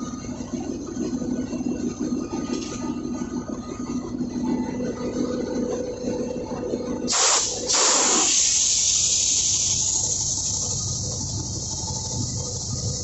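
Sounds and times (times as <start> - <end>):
compressed air hissing: 7.1 - 13.0.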